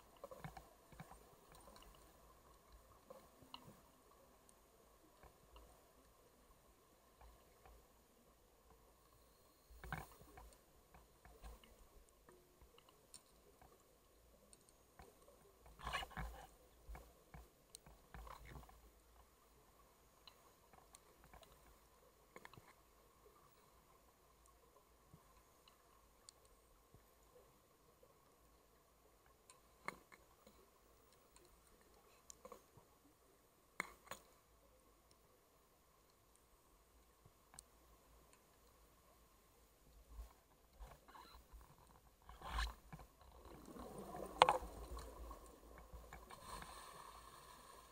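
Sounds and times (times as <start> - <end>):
small clicks: 0.0 - 6.2, 33.8 - 34.4, 39.9 - 46.8
faint sharp underwater clicks: 0.0 - 47.9
faint steady hum: 0.0 - 47.9.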